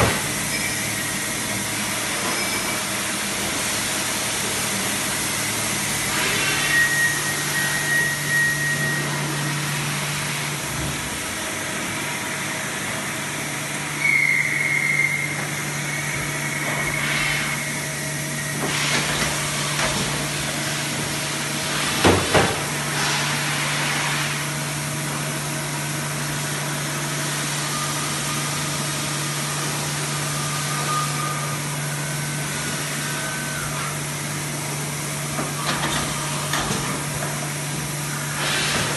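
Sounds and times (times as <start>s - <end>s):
machine mechanical hum and hiss: 0.0s - 38.9s
short high whistles: 14.0s - 15.4s.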